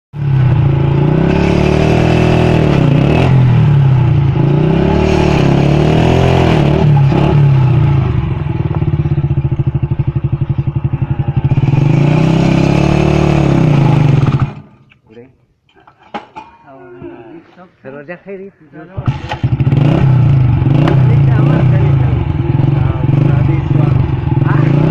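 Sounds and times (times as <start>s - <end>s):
small motorcycle engine running: 5.6s - 14.6s.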